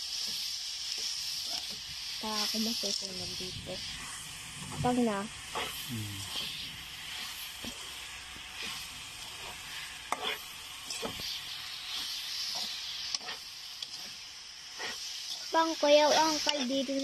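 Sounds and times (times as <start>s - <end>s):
sizzling in a wok: 0.0s - 17.0s
spatula scraping pan: 8.6s - 11.4s, 12.0s - 15.4s.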